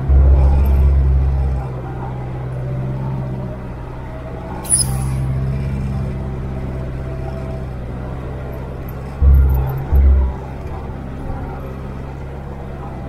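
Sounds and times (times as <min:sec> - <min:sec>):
car engine and road noise: 0:00.0 - 0:13.0.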